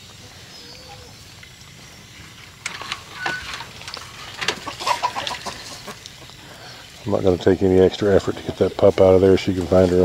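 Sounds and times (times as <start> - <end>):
dry leaves rustling and crackling: 0.0 - 10.0.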